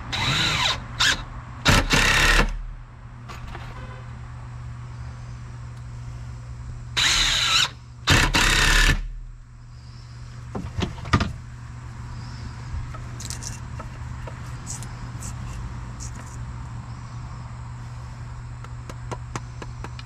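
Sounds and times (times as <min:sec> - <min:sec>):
power tool whining under load: 0:00.0 - 0:02.6, 0:07.0 - 0:09.2.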